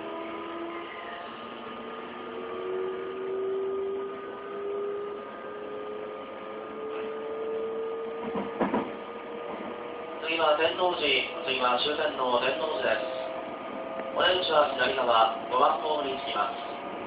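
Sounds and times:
train inverter whine rising: 0.0s - 17.0s
train running noise: 8.1s - 17.0s
brief clatter: 8.2s - 9.8s.

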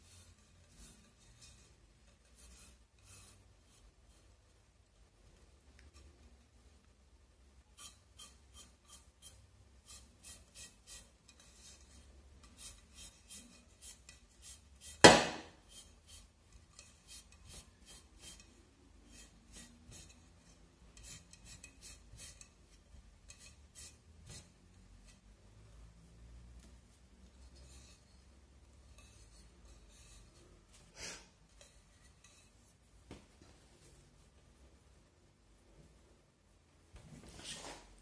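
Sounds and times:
sharp knock: 15.0s - 15.6s.

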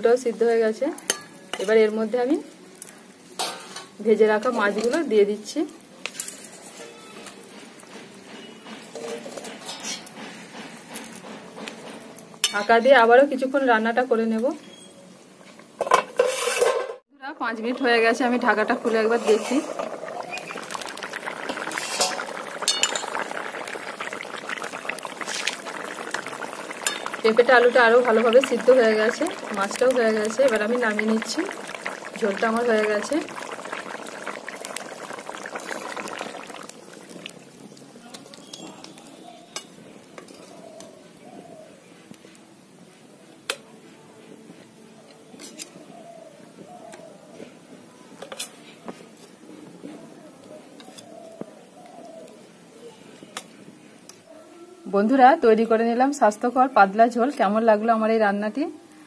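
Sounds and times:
curry bubbling in a wok: 17.5s - 42.3s
spatula stirring: 18.0s - 40.9s
steel ladle clinking on metal: 22.0s - 23.2s.

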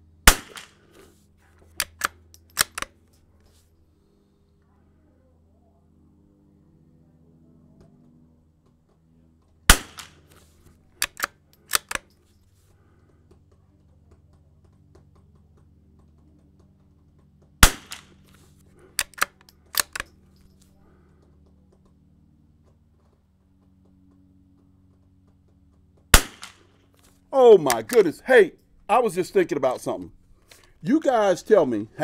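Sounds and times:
rifle shots: 0.2s - 0.8s, 9.7s - 10.3s, 17.6s - 18.2s, 26.1s - 26.7s
metallic bolt clicks: 1.8s - 2.9s, 11.0s - 12.2s, 19.0s - 20.2s.

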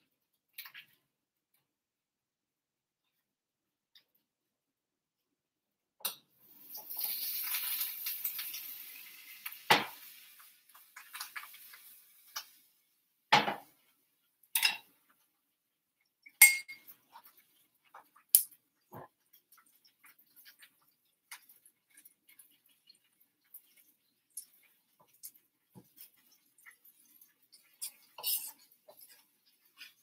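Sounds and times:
food frying hiss: 6.3s - 14.2s, 16.9s - 30.0s
metal spoon clinking on saucepan: 14.6s - 14.9s, 16.3s - 16.9s.

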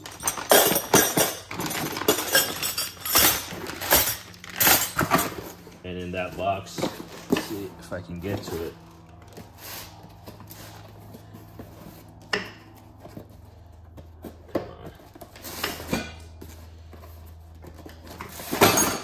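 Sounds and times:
steel wrenches clinking and rattling: 0.0s - 5.6s, 18.1s - 19.0s
steady low hum: 0.0s - 19.0s.

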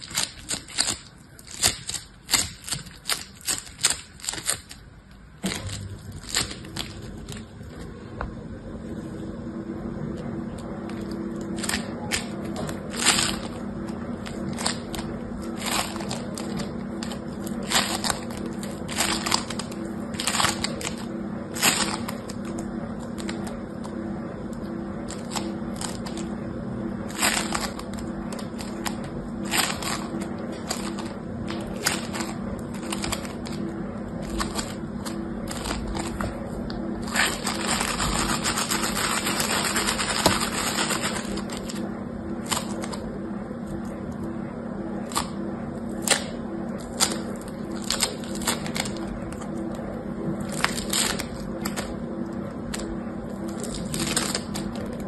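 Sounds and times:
foam slime crackling and popping: 5.4s - 7.5s, 10.5s - 23.8s, 27.1s - 41.8s, 45.0s - 49.8s, 50.4s - 55.0s.

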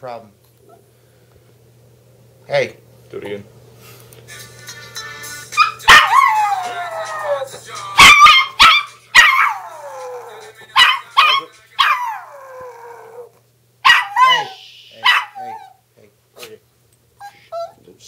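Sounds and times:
small dog barking and howling: 5.5s - 15.8s.

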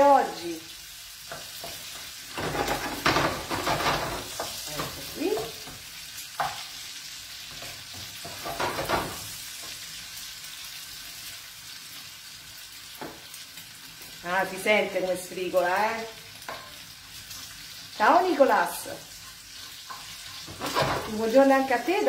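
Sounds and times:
meat sizzling in a frying pan: 0.0s - 22.0s
wooden spatula scraping a pan: 1.2s - 9.8s, 18.4s - 21.8s.

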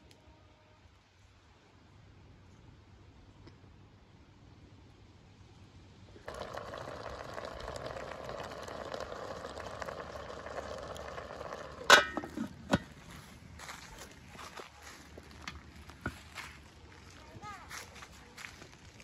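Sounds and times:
pot bubbling and hissing: 6.2s - 16.4s
metal lid clanking onto pot: 11.5s - 13.0s.

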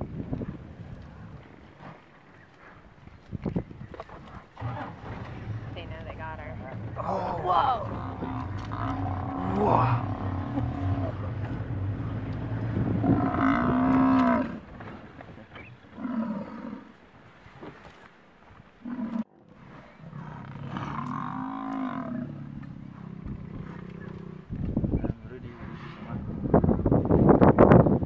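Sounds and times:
buffalo bellowing in distress: 7.0s - 11.8s, 12.8s - 14.6s.

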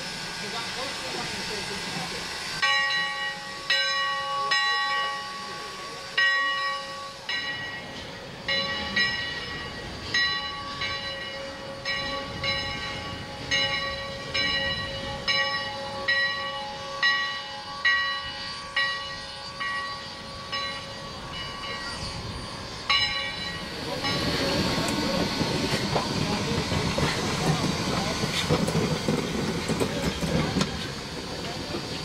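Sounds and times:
locomotive bell ringing: 2.6s - 28.2s.

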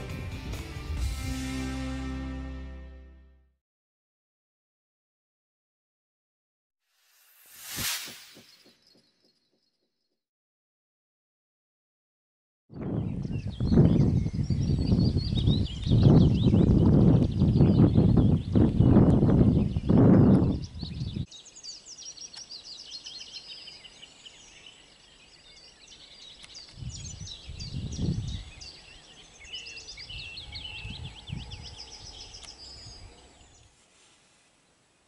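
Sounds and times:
songbirds twittering: 12.8s - 33.7s.

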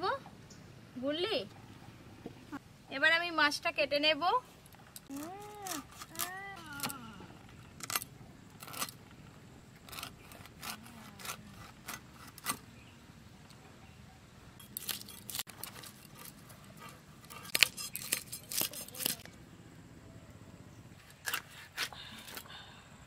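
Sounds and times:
fish scales scraping on blade: 9.8s - 12.6s, 14.8s - 19.2s.

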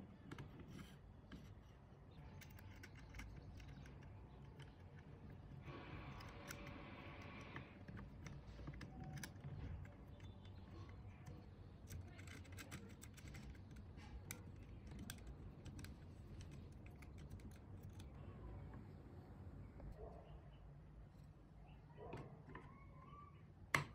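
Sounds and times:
small metal clicks and ticks: 2.1s - 18.2s.

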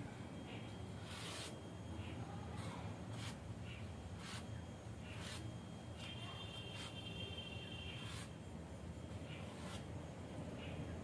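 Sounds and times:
tip scratching on foam: 1.0s - 1.6s, 2.6s - 3.4s, 4.1s - 7.0s, 7.9s - 8.4s, 9.4s - 9.9s.

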